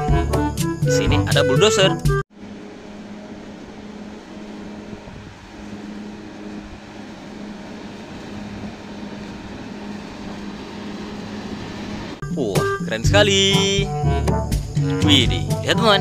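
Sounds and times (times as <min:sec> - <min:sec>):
diesel engine droning: 0:00.0 - 0:16.0
plow blade pushing snow: 0:02.3 - 0:12.2.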